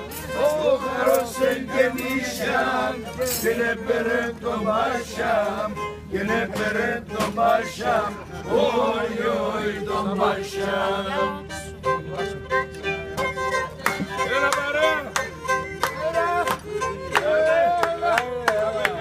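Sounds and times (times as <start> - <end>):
held instrumental tone: 0.0 - 17.8
men singing together: 0.3 - 11.4, 17.1 - 19.0.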